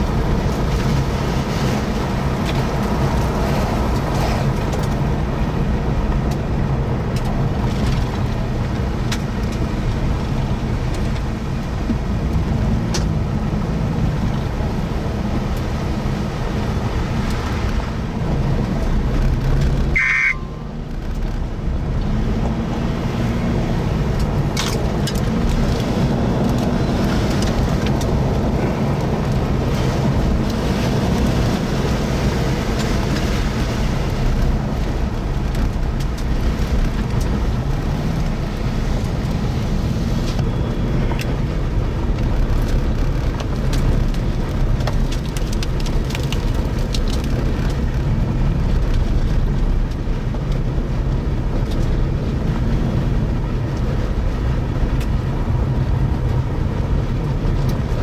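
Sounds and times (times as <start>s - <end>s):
car road and engine noise: 0.0s - 58.0s
short high beep: 19.9s - 20.7s.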